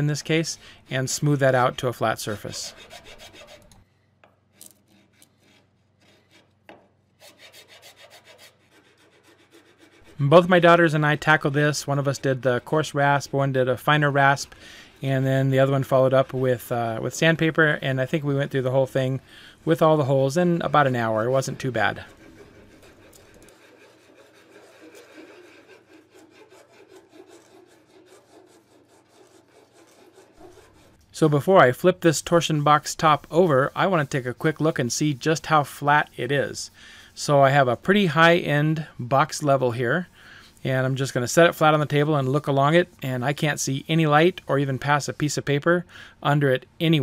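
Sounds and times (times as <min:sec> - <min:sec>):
hand rasp filing plywood: 0:01.4 - 0:03.7, 0:07.2 - 0:10.2, 0:19.6 - 0:31.0.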